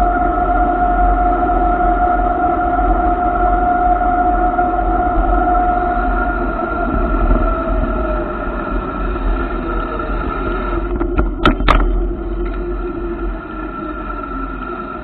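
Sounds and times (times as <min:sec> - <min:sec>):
motorcycle engine rumbling: 0:06.0 - 0:15.0.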